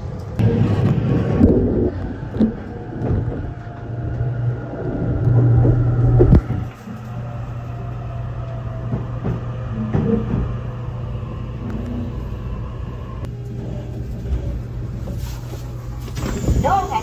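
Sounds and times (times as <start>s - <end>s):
train interior hum: 0.0s - 17.0s.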